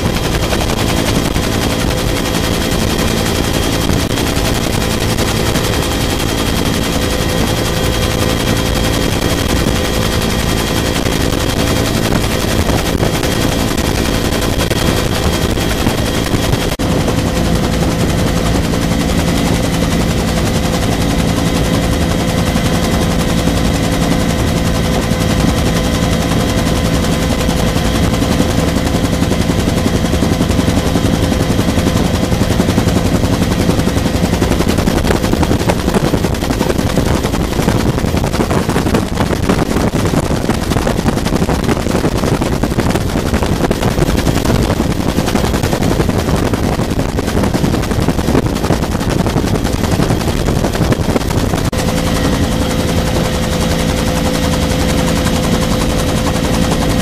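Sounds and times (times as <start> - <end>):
helicopter rotor beating: 0.0 - 57.0
turbine and gearbox whine: 0.0 - 57.0.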